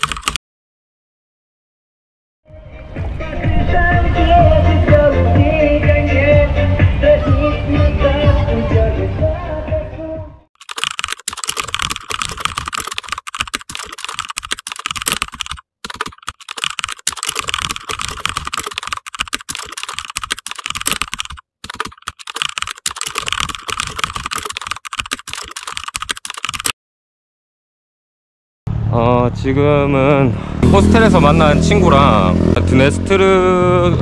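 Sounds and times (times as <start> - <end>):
rapid keyboard typing: 0.0 - 0.4, 10.6 - 26.8.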